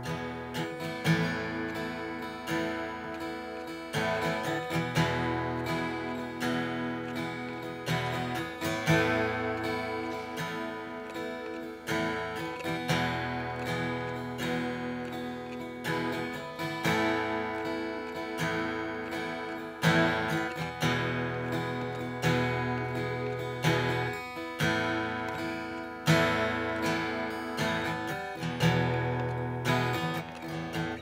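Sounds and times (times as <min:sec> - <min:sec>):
strummed acoustic guitar: 0:00.0 - 0:31.0.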